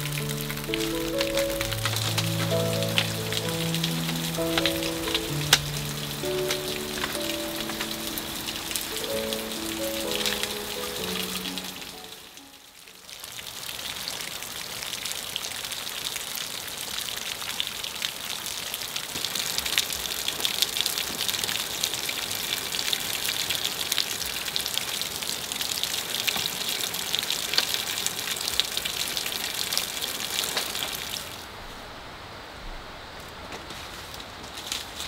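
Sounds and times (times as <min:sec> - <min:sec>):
falling water pattering: 0:00.0 - 0:12.5, 0:18.9 - 0:31.5.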